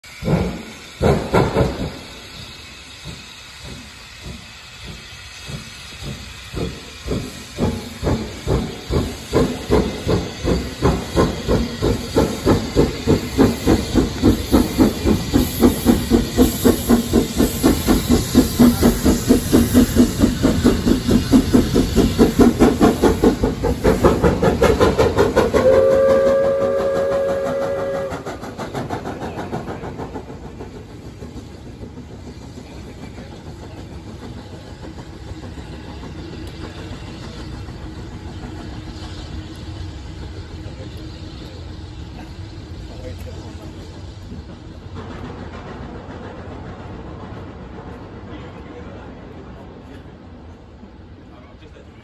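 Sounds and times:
steam locomotive exhaust beats: 0.0s - 51.8s
steam hiss: 0.0s - 52.0s.

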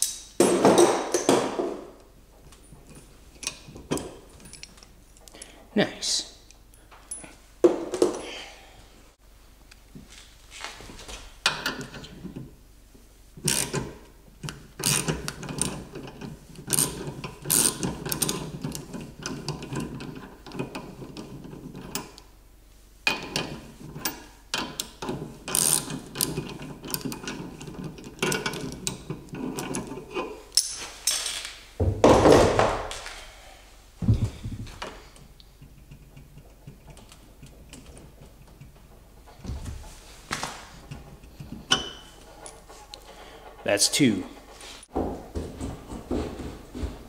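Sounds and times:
metal scrape: 41.9s - 44.9s.

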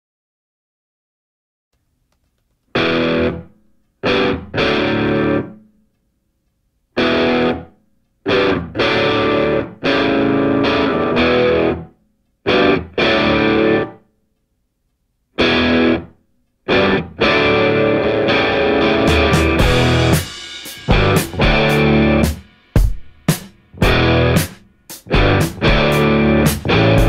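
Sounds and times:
distorted electric guitar chords: 2.8s - 5.6s, 7.0s - 14.0s, 15.4s - 22.9s, 23.7s - 27.0s.

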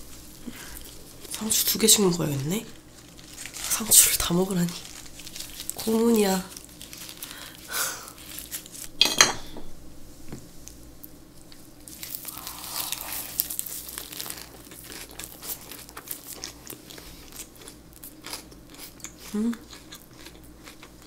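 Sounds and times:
lettuce leaves crinkling: 0.0s - 9.0s, 11.8s - 18.4s
crunchy bites and wet chewing: 11.8s - 21.0s.

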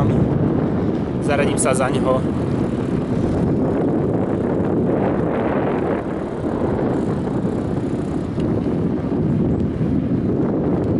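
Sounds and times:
wind on microphone: 0.0s - 10.9s.

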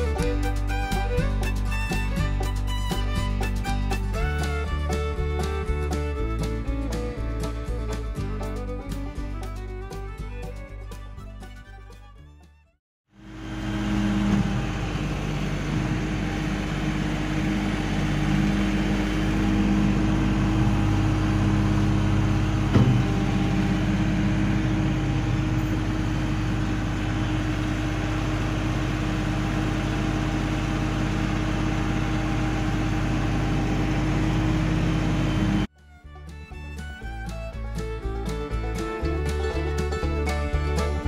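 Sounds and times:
tractor diesel engine running: 0.0s - 12.2s, 13.1s - 41.0s
loader bucket pushing soil: 13.2s - 35.7s
sharp knock: 22.7s - 23.2s.

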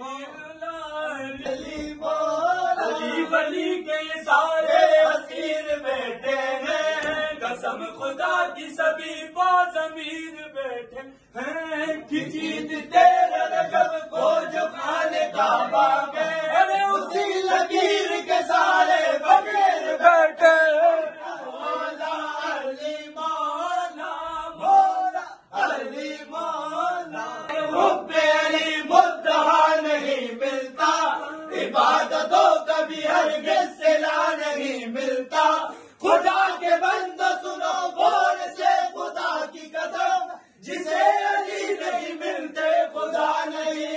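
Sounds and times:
men chanting a devotional song: 0.0s - 43.9s.

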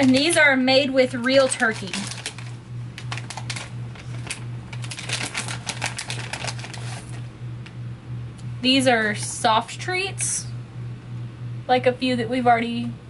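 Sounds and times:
plastic bag crinkling: 0.0s - 0.5s, 1.1s - 7.3s
steady low hum: 0.0s - 13.0s.

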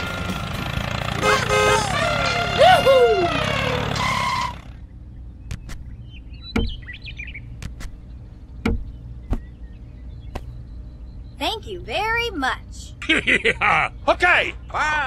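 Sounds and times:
low steady hum: 4.1s - 14.8s.

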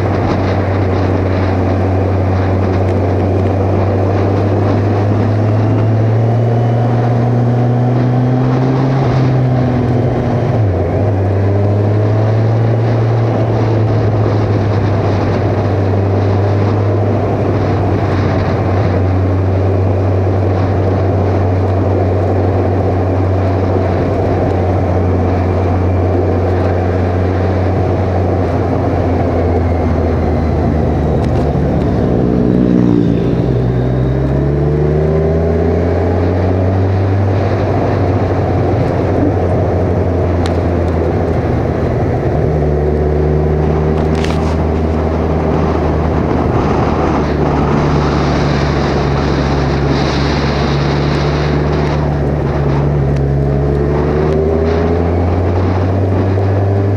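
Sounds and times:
motorcycle engine running: 0.0s - 56.9s
wind noise: 0.0s - 56.9s.

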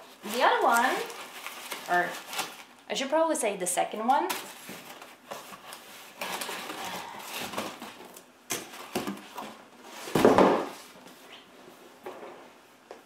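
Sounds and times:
cardboard rustling and scraping: 0.0s - 2.6s, 4.3s - 11.8s
thump on cardboard: 10.1s - 10.8s.

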